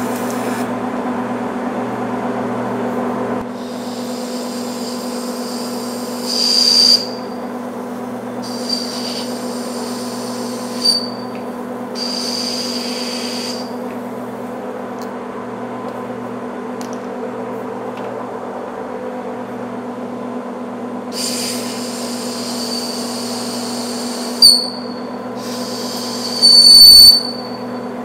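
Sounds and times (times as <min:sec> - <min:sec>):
cutting tool squealing: 0:06.2 - 0:07.4, 0:08.5 - 0:09.4, 0:10.0 - 0:11.3, 0:23.9 - 0:28.0.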